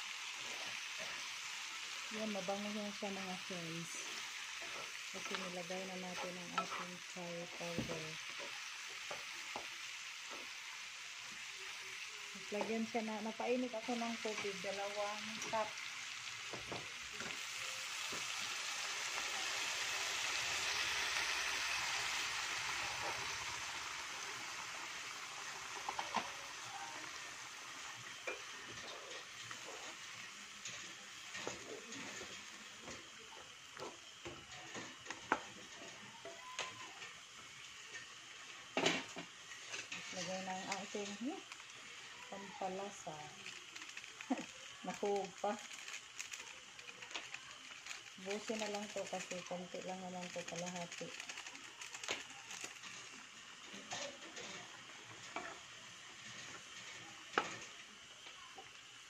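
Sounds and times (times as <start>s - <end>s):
curry sizzling: 0.0s - 59.0s
sauce simmering hiss: 0.0s - 59.0s
spatula scraping and knocking wok: 4.0s - 10.6s, 27.8s - 33.1s, 37.8s - 41.2s, 52.8s - 57.7s.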